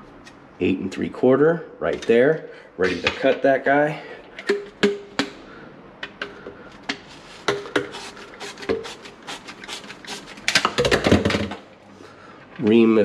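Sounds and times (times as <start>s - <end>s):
pipe cutter clicking and scraping: 6.0s - 10.8s.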